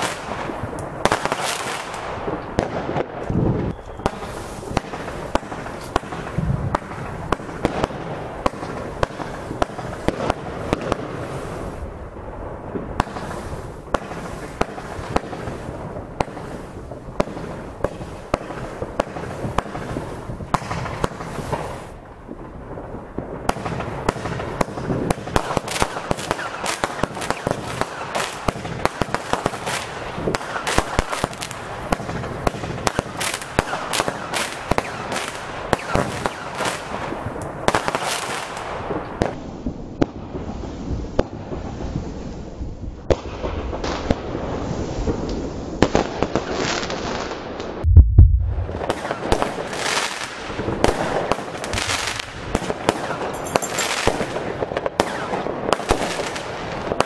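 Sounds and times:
sharp firework pops: 0.0 - 11.7, 12.7 - 22.5, 23.1 - 39.4, 45.1 - 57.0
fireworks hissing and crackling: 0.0 - 57.0.

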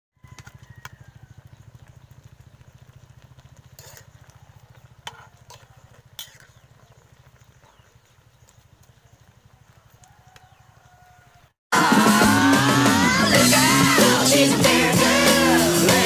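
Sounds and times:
small engine running: 0.2 - 11.1
metal spatula scraping pan: 3.8 - 4.1, 5.0 - 6.6.

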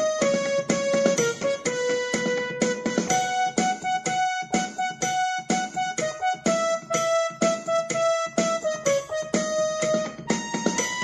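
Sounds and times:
keyboard instrumental music: 0.0 - 11.0.

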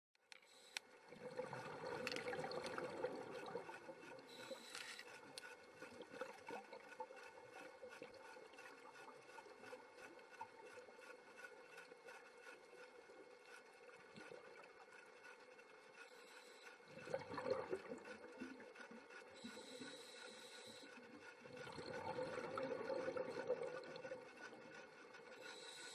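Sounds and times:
faint hum: 0.3 - 25.9
underwater rush: 1.0 - 11.4, 16.9 - 18.7, 21.2 - 24.7.

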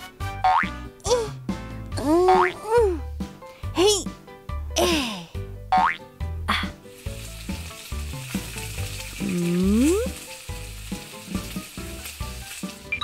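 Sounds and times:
low background notes: 0.0 - 13.0
eggs sizzling in a pan: 5.7 - 13.0.

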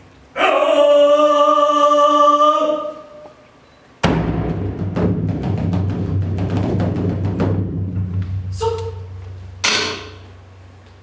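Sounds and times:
taiko drums: 4.0 - 10.3.

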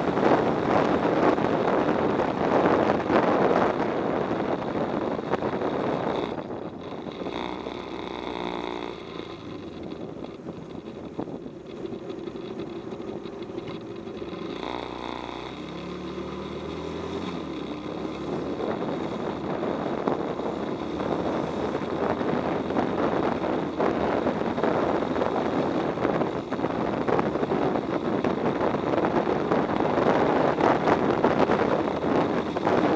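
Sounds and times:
motorcycle engine running: 0.0 - 32.9
wind rushing over microphone: 0.0 - 32.9.

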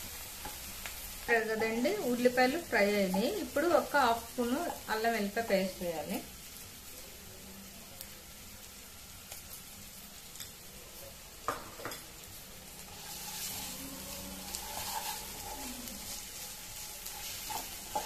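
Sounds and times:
onions sizzling in oil: 0.0 - 18.0
spatula stirring and scraping: 12.8 - 18.0.

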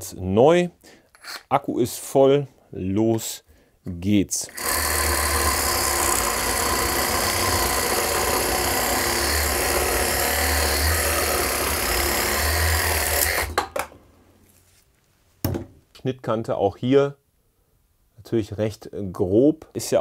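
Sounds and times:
reciprocating saw cutting wood: 4.5 - 13.6
knock: 15.4 - 15.8.

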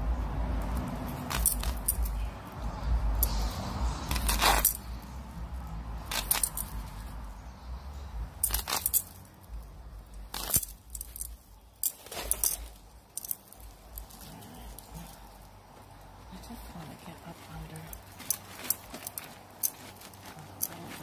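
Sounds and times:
gloved hands scraping fabric: 3.2 - 5.1, 6.0 - 7.1.

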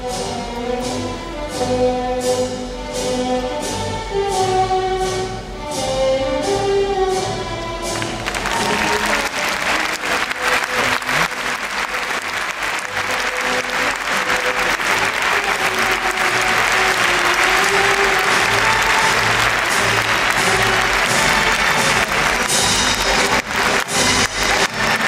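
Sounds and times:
faint orchestral music: 0.0 - 25.0
audience applauding: 8.0 - 25.0.

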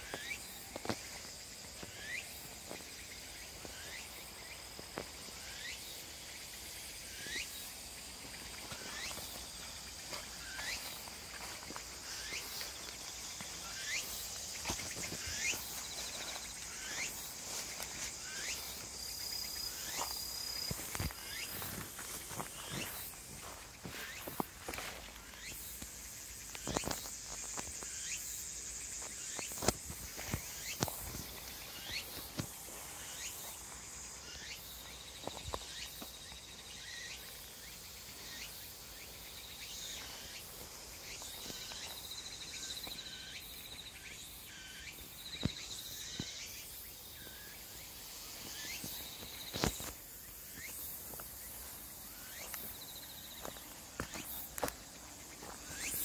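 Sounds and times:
footsteps through dense weeds: 0.0 - 34.2, 47.2 - 56.0
insects trilling: 0.0 - 56.0.

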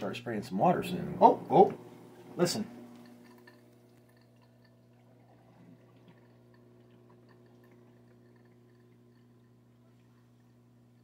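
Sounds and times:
dishwasher humming: 0.0 - 11.0
water ticks and drips: 2.8 - 11.0.

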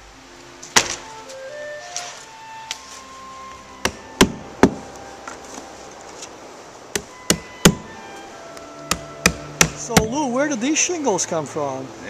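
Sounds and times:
hammer striking nails: 3.9 - 4.8, 7.0 - 7.9, 8.9 - 10.2.

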